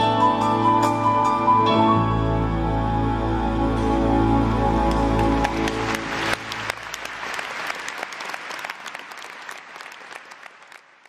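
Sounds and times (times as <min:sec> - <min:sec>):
background music: 0:00.0 - 0:07.8
audience applauding: 0:04.7 - 0:11.0.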